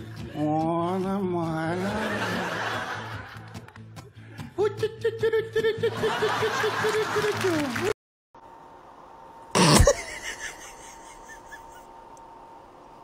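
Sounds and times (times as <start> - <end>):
background music: 0.0 - 7.9
laughter: 1.8 - 3.6, 4.6 - 7.6, 9.8 - 11.9.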